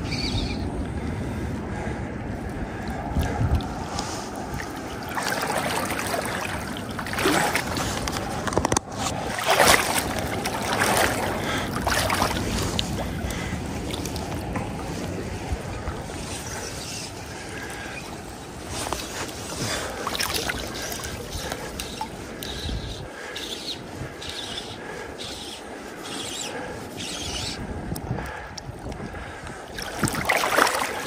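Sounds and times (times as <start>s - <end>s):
river water rushing and splashing: 3.2s - 22.3s, 29.7s - 31.0s.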